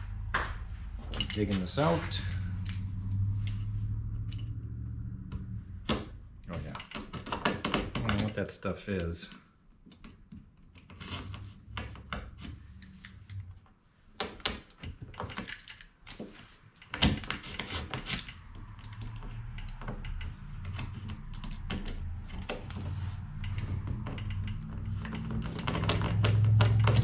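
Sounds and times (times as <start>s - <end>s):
low steady hum: 0.0s - 7.0s
hand tool scraping plastic: 6.5s - 13.5s, 16.1s - 27.0s.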